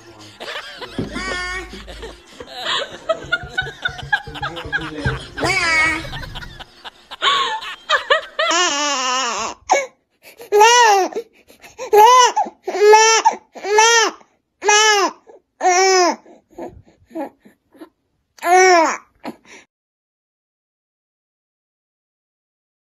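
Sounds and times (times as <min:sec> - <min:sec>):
baby crying: 0:00.6 - 0:02.1, 0:05.4 - 0:06.4, 0:08.4 - 0:19.4.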